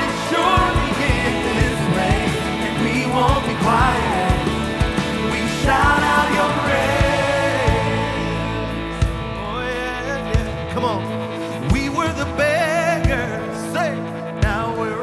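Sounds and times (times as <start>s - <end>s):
drums on a slow beat: 0.0s - 9.6s
man singing: 0.0s - 15.0s
sustained keyboard chords: 0.0s - 15.0s.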